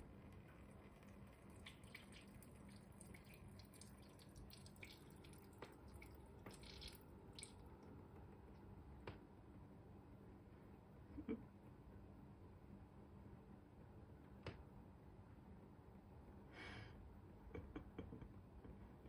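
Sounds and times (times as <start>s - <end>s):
faint water splashes and drips: 0.4s - 7.9s.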